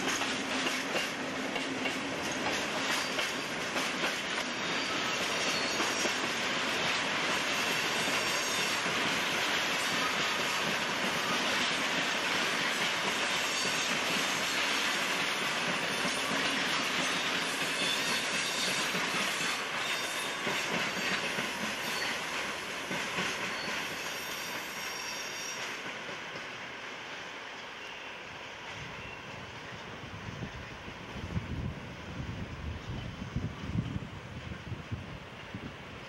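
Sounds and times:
train wheels rumbling on rails: 0.0s - 36.0s
faint high wheel squeal: 4.4s - 6.2s, 7.5s - 8.8s, 17.0s - 21.2s, 21.8s - 22.3s, 23.3s - 25.8s, 27.7s - 30.7s.

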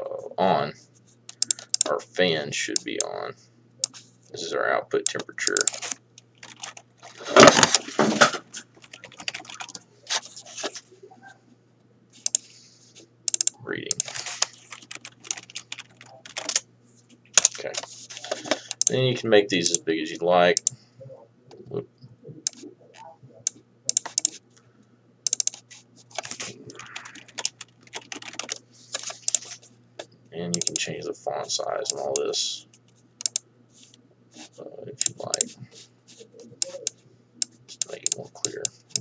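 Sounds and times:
typing on computer keyboard: 1.3s - 1.9s, 5.1s - 6.8s, 8.8s - 9.8s, 12.2s - 12.4s, 13.3s - 16.6s, 20.6s - 20.8s, 23.9s - 24.4s, 25.3s - 29.5s, 30.6s - 30.8s, 33.2s - 33.4s.

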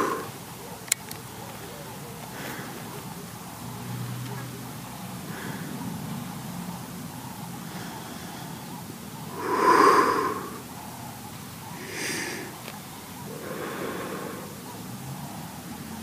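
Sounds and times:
person breathing heavily: 0.0s - 0.4s, 2.3s - 3.1s, 5.2s - 6.0s, 7.6s - 15.8s.

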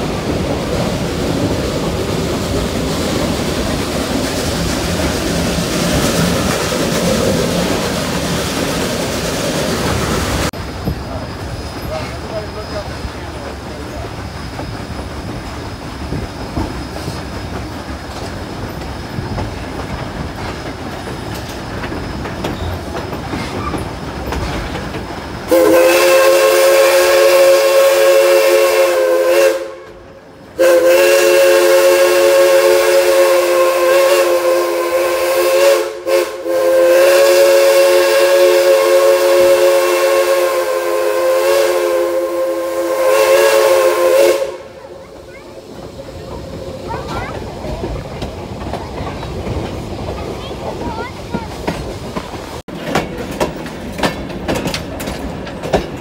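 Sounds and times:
train wheels rumbling on rail: 0.0s - 56.0s
steam locomotive chime whistle: 25.5s - 30.0s, 30.6s - 44.8s.

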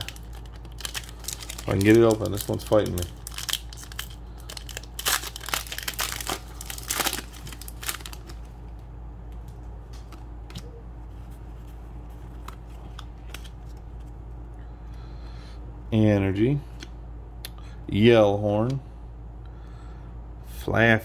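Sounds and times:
foil wrapper crinkling and tearing: 0.0s - 8.5s.

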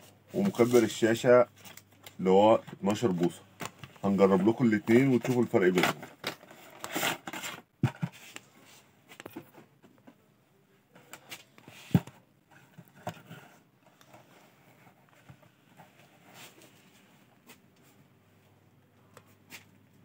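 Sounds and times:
clicks and knocks of handling: 1.6s - 8.5s, 9.1s - 10.2s.

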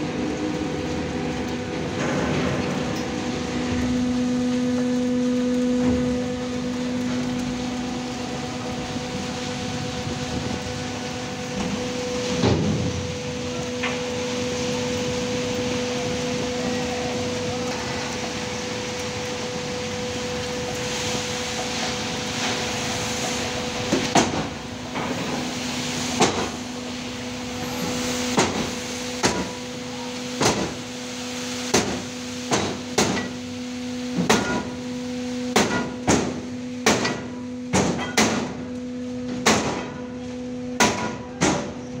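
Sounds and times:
steady machine hum: 0.0s - 42.0s.

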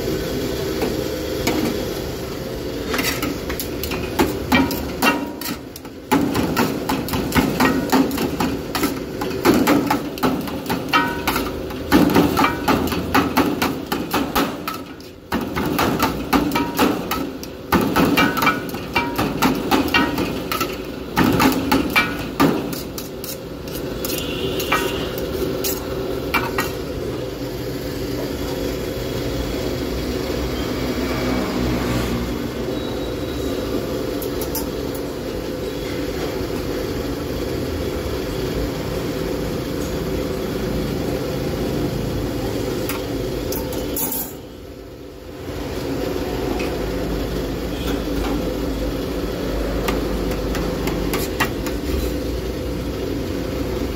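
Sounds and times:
steady background hum: 0.0s - 53.9s
metal utensils scraping a steel tray: 22.7s - 26.8s.

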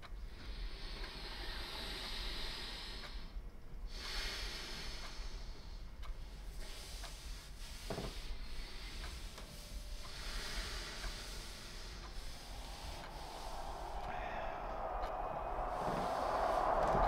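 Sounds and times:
man breathing deeply: 0.4s - 17.0s
low steady hum: 9.4s - 17.0s.

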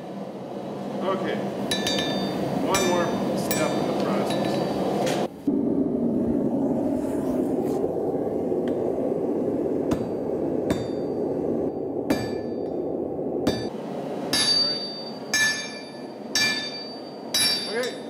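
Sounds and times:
steady roar: 4.8s - 14.3s
sledgehammer striking metal: 14.3s - 18.0s.

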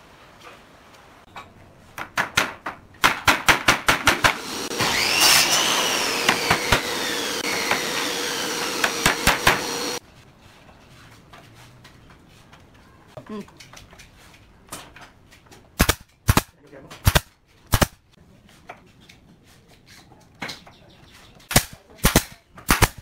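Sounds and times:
motor whining: 4.3s - 10.0s.

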